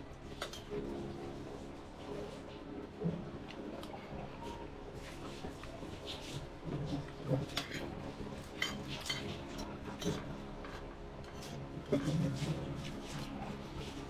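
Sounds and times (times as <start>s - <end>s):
cutlery clinking on plate: 8.6s - 10.2s.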